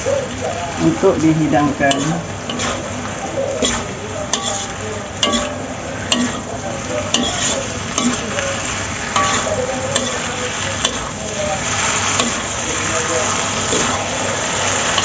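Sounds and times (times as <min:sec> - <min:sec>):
frying sizzle: 0:00.0 - 0:15.0
metal spatula clanking on wok: 0:01.8 - 0:02.8, 0:03.6 - 0:11.2, 0:12.0 - 0:12.6.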